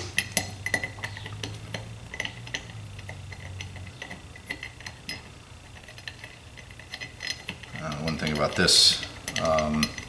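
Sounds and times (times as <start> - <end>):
metallic clicks of small parts: 0.0 - 10.0.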